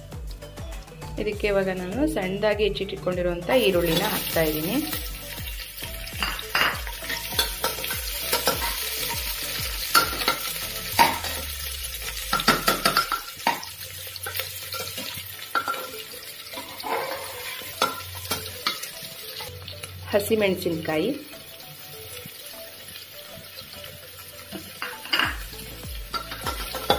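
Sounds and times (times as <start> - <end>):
onions sizzling in hot oil: 3.4 - 26.9
metal spoon scraping a pot: 16.6 - 18.8.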